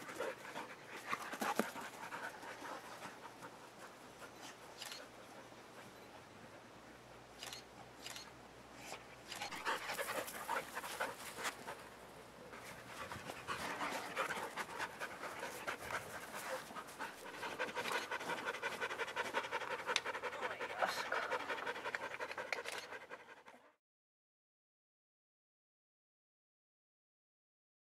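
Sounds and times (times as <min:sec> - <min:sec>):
dog panting: 0:00.0 - 0:06.7, 0:08.9 - 0:23.8.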